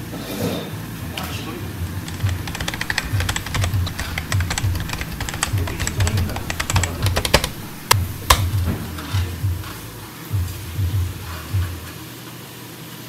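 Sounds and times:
sharp clicks: 0:02.0 - 0:08.9
fat crackling and popping: 0:02.0 - 0:09.0
background music with low beat: 0:02.0 - 0:11.9.

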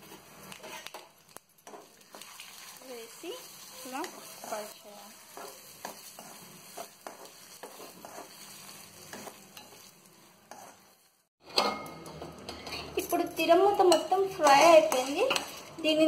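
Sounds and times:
oil sizzling in a pan: 0:00.0 - 0:11.3
steel spoon stirring and scraping: 0:00.0 - 0:16.0.

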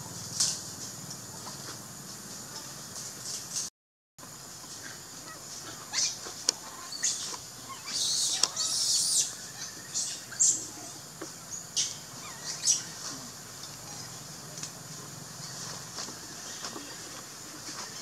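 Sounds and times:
birds chirping: 0:05.9 - 0:18.0.

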